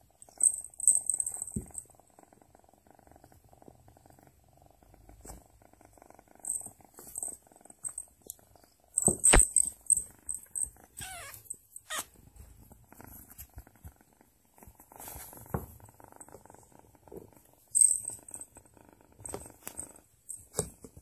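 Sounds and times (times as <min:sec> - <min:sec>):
kitten purring: 0:00.0 - 0:21.0.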